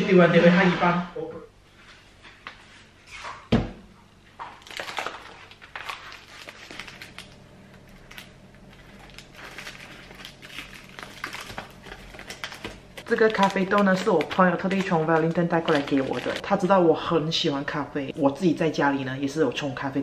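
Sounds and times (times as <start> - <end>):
paper bag crinkling: 4.6 - 16.7.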